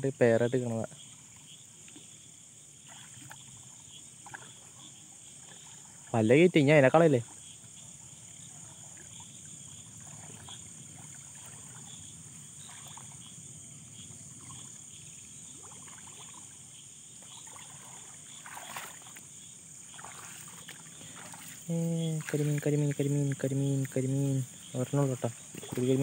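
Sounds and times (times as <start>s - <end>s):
insects chirring: 0.0s - 26.0s
wading in shallow water: 0.5s - 26.0s
loud splash: 17.4s - 19.2s, 19.9s - 21.6s.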